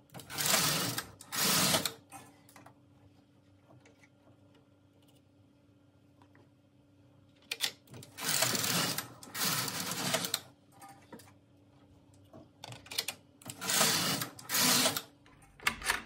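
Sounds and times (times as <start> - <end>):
knitting machine carriage sliding: 0.2 - 2.0, 8.0 - 10.4.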